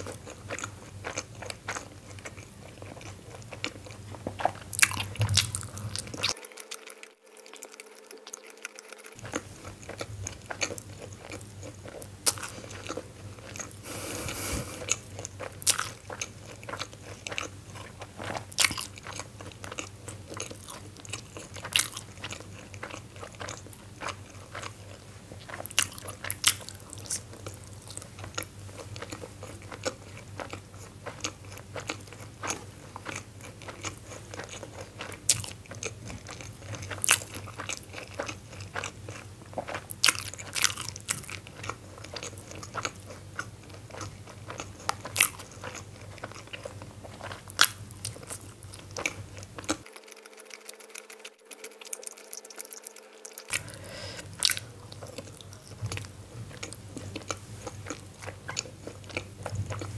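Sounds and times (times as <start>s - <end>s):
person chewing food: 0.0s - 59.9s.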